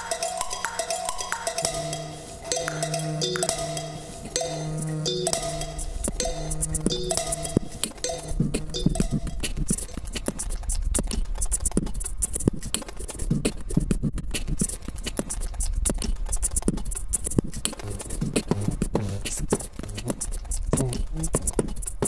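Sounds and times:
low steady hum: 2.0s - 15.0s
experimental clicks and scratchy noises: 2.5s - 22.0s.

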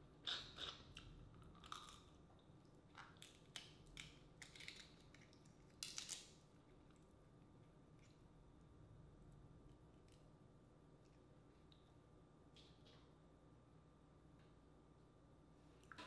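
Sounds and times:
crab shell cracking: 2.9s - 7.0s.

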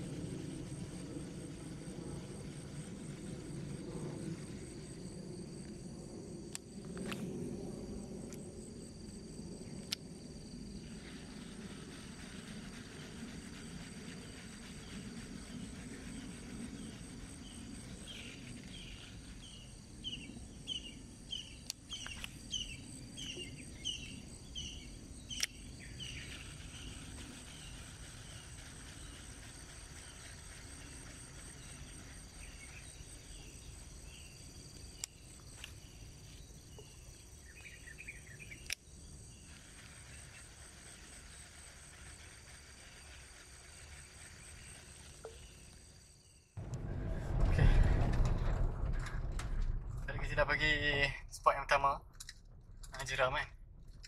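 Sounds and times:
insects buzzing: 0.0s - 48.3s
bird chirping: 12.4s - 41.5s.

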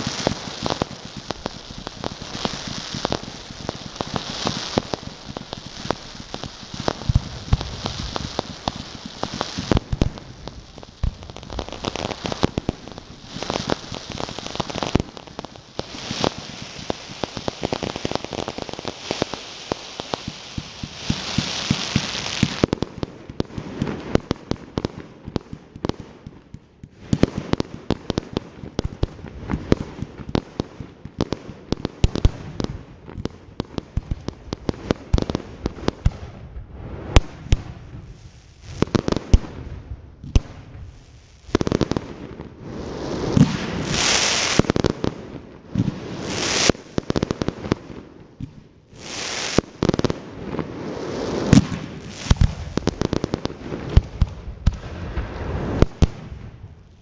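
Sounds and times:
fireworks loud hissing: 0.0s - 24.2s, 34.2s - 47.8s, 48.9s - 57.0s
fireworks crackling bangs: 0.0s - 57.0s
firework launch thuds: 36.5s - 37.7s.

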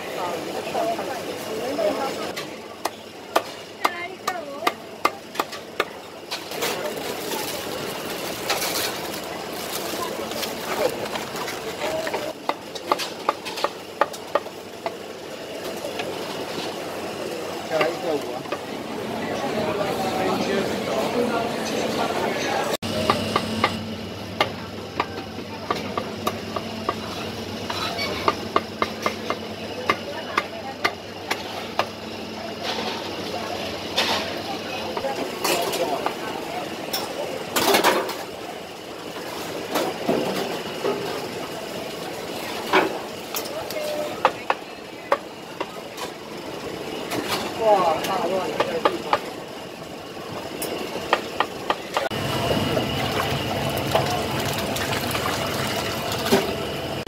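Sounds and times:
steady background hum: 0.0s - 57.0s
plastic bag rustling: 6.7s - 12.1s.

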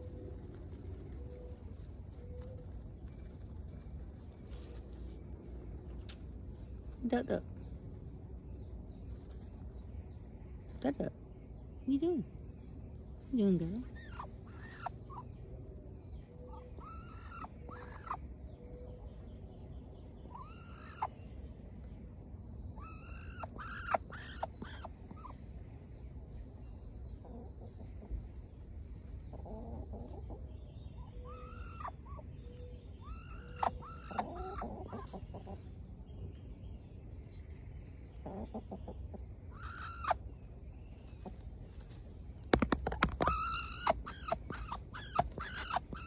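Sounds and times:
duck chirping calls: 16.5s - 18.2s, 22.8s - 25.4s, 33.0s - 35.5s, 39.5s - 40.2s, 42.5s - 46.0s.

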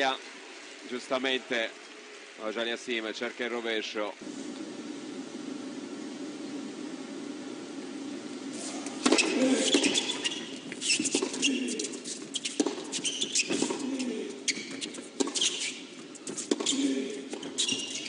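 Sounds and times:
racket hitting tennis ball: 8.6s - 18.0s
sneakers squeaking on court: 8.6s - 18.0s.

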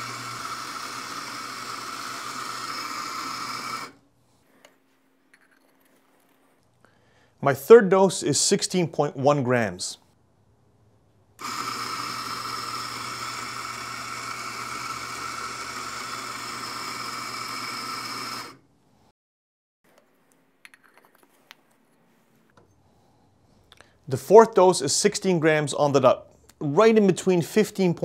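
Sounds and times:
coffee grinder grinding: 0.0s - 4.0s, 11.4s - 18.6s.

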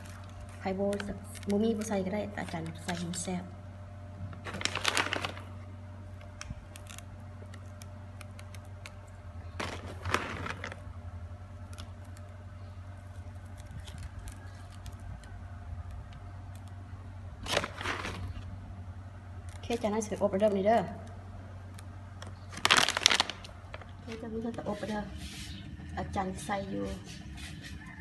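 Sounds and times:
steady low hum: 0.0s - 28.0s
chocolate chips rustling: 4.5s - 5.5s, 9.6s - 10.8s, 17.4s - 18.4s, 22.5s - 24.8s.

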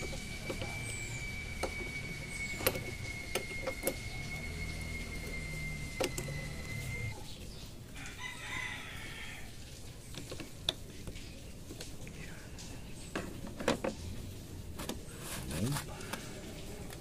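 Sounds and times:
rooster crowing: 8.0s - 9.6s.

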